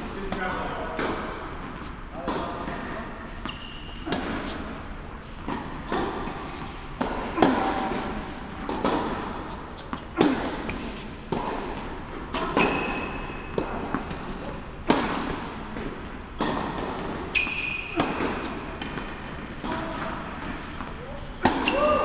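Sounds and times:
rackets striking tennis ball: 0:00.2 - 0:22.0
ball bouncing on court: 0:05.4 - 0:22.0.

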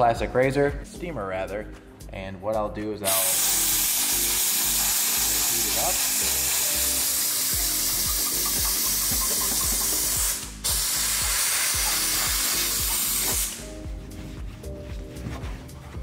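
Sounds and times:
background music with beat: 0:00.0 - 0:16.0
steamer nozzle hissing: 0:03.1 - 0:13.8.

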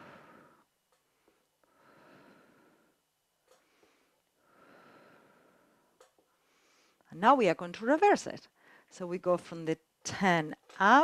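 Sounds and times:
slow breathing into microphone: 0:00.0 - 0:07.1.

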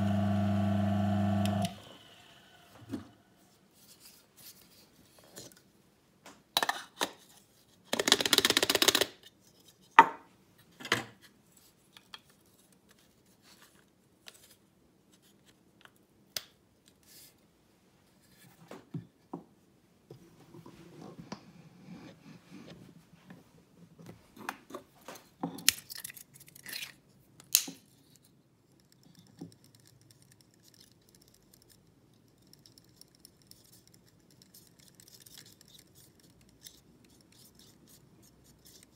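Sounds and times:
needle tool stirring grounds: 0:28.8 - 0:38.9.

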